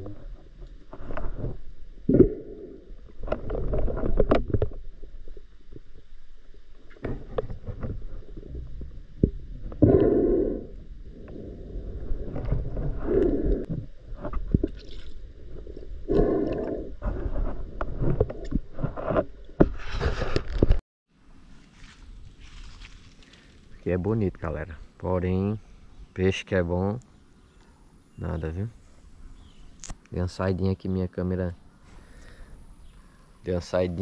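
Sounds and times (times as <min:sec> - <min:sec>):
muffled underwater water rushing: 0:01.0 - 0:18.9.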